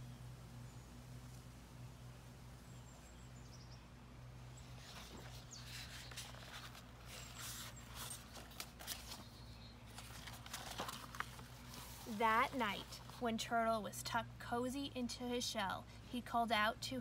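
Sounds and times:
book pages turning: 4.7s - 13.2s.

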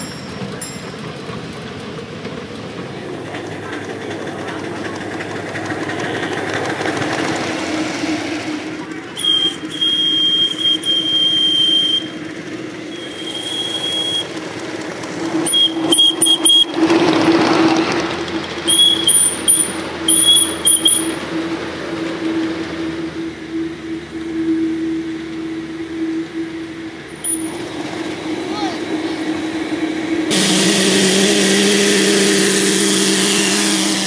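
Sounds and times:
miniature train humming: 0.0s - 34.0s
high-pitched squeals: 15.4s - 34.0s.

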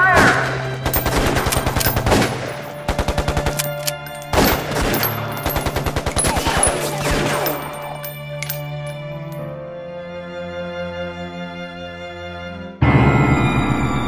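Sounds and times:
rapid gunfire bursts: 0.2s - 7.4s
low music drone: 7.5s - 14.0s
loud hit: 12.8s - 14.0s.

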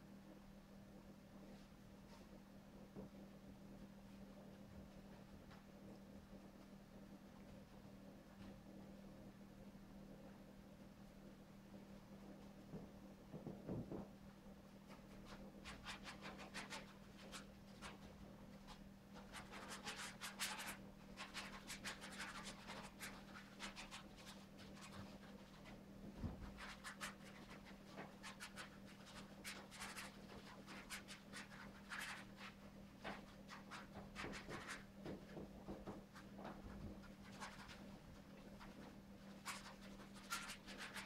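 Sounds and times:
steady low hum: 0.0s - 41.0s
paintbrush scratching on canvas: 14.9s - 25.8s, 26.4s - 35.1s, 35.9s - 41.0s.

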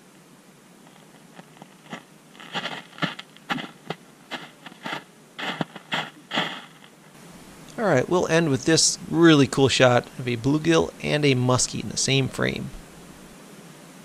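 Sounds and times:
footsteps crunching on ice: 0.8s - 7.0s.

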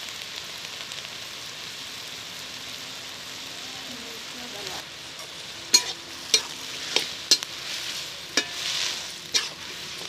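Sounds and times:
tomatoes sizzling in a wok: 0.0s - 10.0s
metal spoon scraping a pan: 5.2s - 10.0s.

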